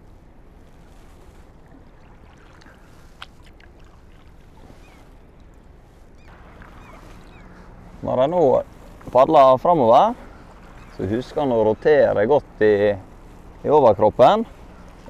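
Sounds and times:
paddle splashing in water: 0.7 - 5.3, 6.3 - 8.0.

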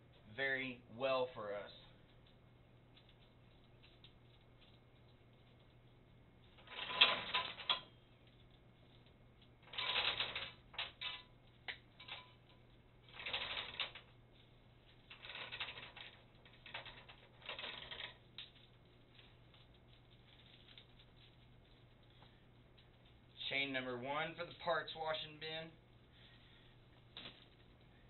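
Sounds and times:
steel chain rattling and clinking: 6.5 - 8.4, 9.6 - 22.1.

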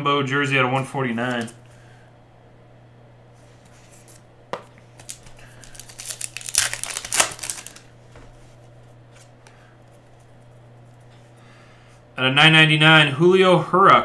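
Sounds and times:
foil pack tearing and crinkling: 4.9 - 7.9.

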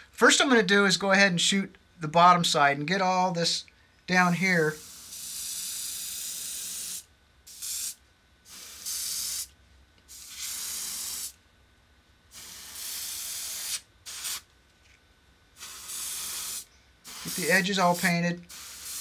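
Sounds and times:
airbrush hiss bursts: 4.1 - 11.4, 12.3 - 14.5, 15.6 - 19.0.

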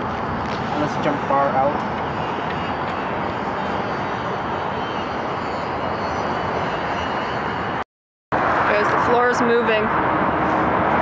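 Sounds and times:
strong wind buffeting microphone: 0.0 - 7.8.

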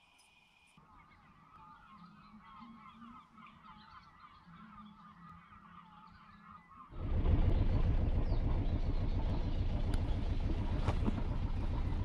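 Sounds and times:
chorus of goose calls: 0.9 - 6.9.

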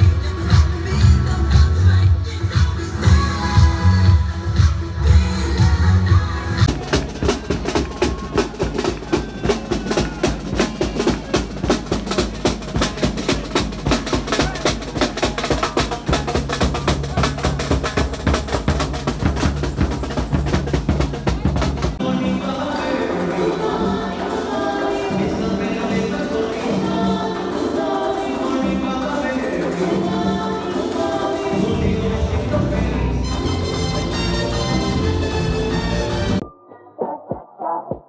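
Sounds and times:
band with singing: 0.0 - 36.4
drum troupe playing fast rhythm: 3.9 - 32.6.

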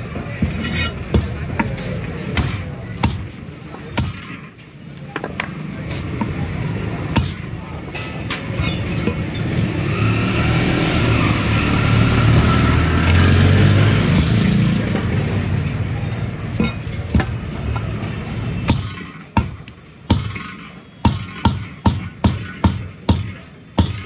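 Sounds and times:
cleaver chopping meat on wood: 0.4 - 4.4, 7.0 - 7.5, 16.6 - 17.9, 18.6 - 24.0.

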